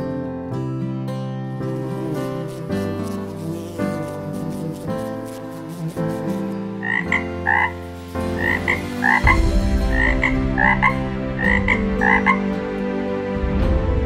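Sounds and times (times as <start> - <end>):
tree frog croaking: 1.7 - 12.5.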